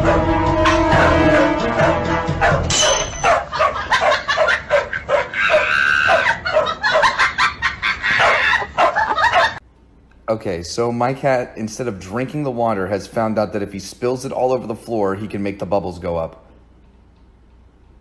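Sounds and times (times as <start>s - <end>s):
background music: 0.0s - 3.5s
dogs barking rapidly: 2.2s - 9.6s.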